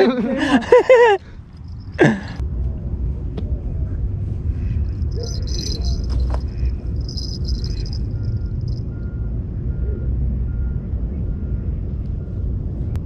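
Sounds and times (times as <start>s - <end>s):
steady low rumble: 0.5s - 9.6s
fishing gear rustling: 5.0s - 8.8s.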